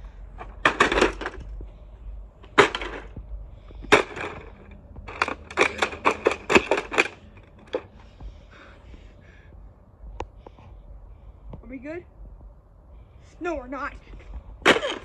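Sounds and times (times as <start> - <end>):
plastic toy cracking and clattering: 0.4 - 1.5, 2.6 - 3.2, 3.8 - 7.9.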